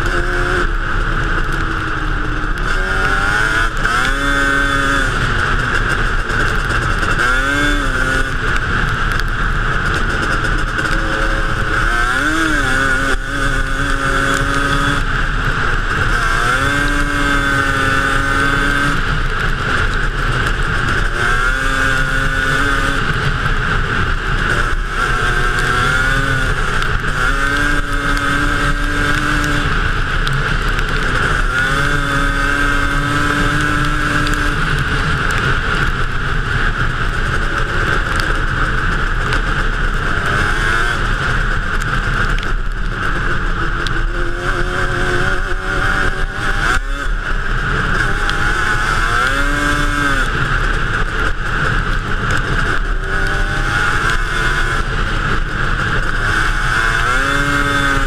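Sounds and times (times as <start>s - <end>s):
two-stroke engine running hard: 0.0s - 58.0s.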